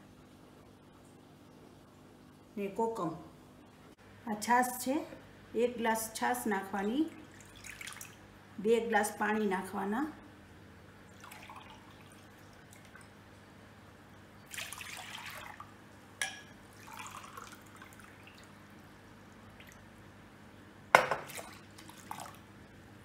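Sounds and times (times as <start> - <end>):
water poured into glass: 11.2 - 12.3, 14.5 - 15.6, 16.7 - 18.5
glass knock and splash: 21.0 - 21.5.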